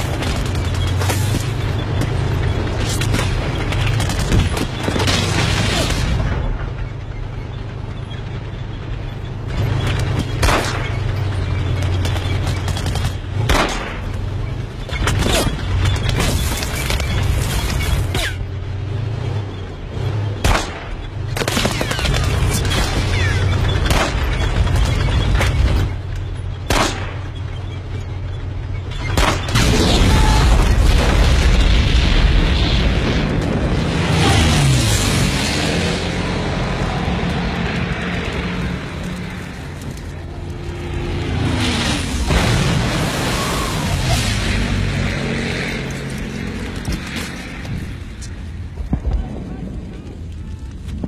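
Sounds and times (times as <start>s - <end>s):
gunfire: 12.2s - 14.1s, 20.4s - 25.1s, 26.7s - 27.3s
heavy low rumble: 28.5s - 51.0s
explosions: 29.2s - 39.3s, 41.0s - 45.6s
steady low rumble: 42.0s - 51.0s.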